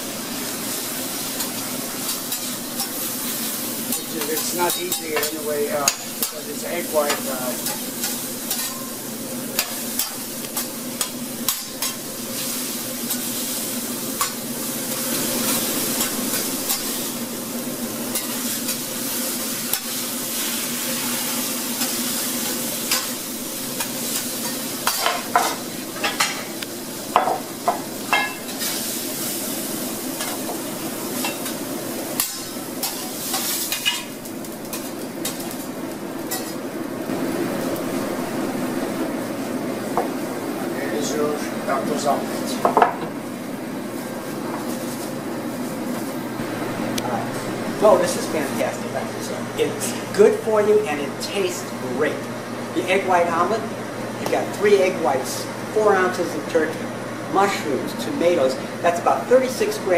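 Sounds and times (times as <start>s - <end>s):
omelette sizzling on a griddle: 0.0s - 36.7s.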